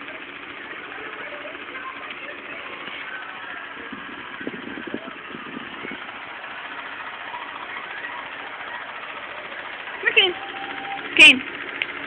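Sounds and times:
box fan whooshing hum: 0.0 - 12.0.

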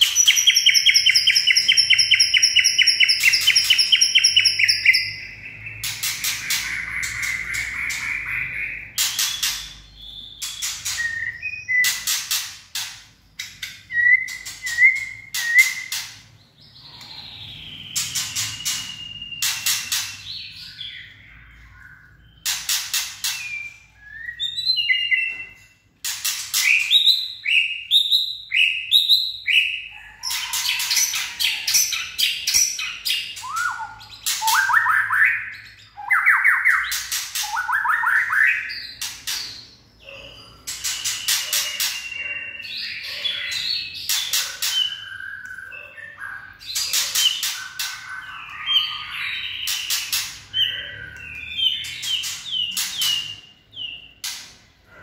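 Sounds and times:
bird singing whistles and clicks: 0.0 - 8.3, 9.0 - 16.2, 17.9 - 20.4, 22.4 - 39.5, 40.7 - 42.6.

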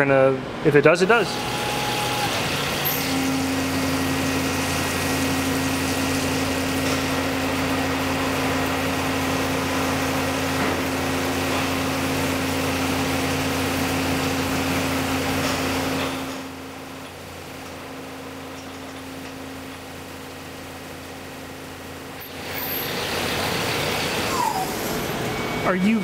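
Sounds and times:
mill spindle humming: 1.1 - 26.0
coolant hissing and splashing: 2.2 - 16.4.

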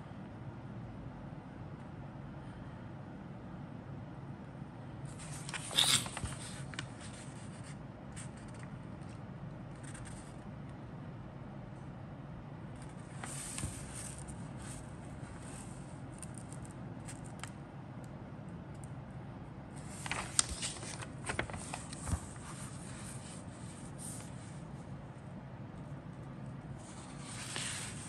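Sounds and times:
paper pages rustling: 5.2 - 8.7, 12.9 - 14.9, 19.8 - 24.5, 26.8 - 28.0.

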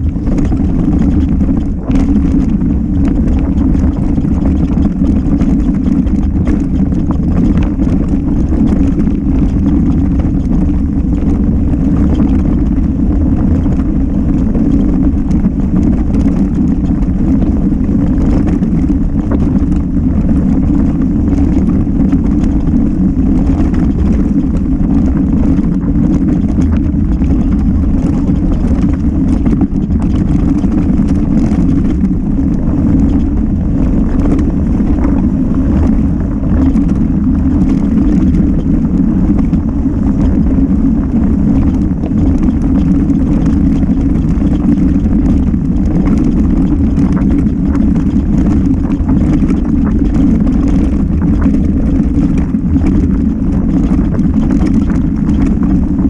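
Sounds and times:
wind and tyre rumble: 0.0 - 56.0.

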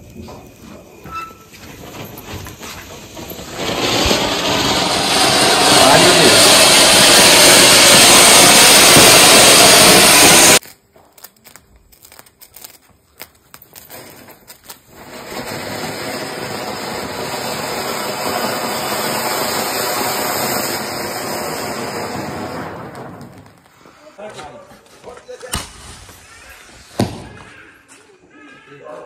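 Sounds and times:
firework fountain hissing: 0.0 - 10.7, 12.4 - 24.2.

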